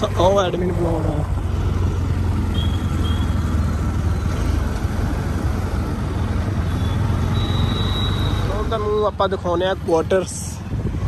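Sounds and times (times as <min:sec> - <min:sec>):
road noise: 0:00.0 - 0:11.0
wind noise: 0:10.5 - 0:11.0.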